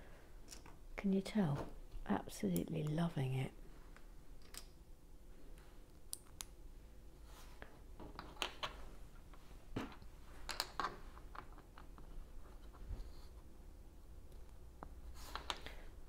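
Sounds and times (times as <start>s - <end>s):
plastic bricks clicking: 10.5s - 12.1s.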